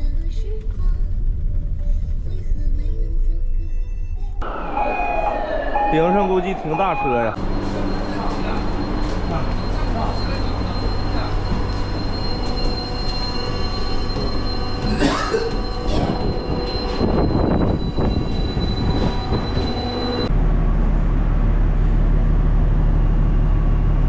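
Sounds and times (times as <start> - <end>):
high machinery whine: 4.4 - 21.7
ship machinery drone: 4.4 - 24.0
low rumble: 6.8 - 24.0
footsteps on metal stairs: 7.5 - 20.2.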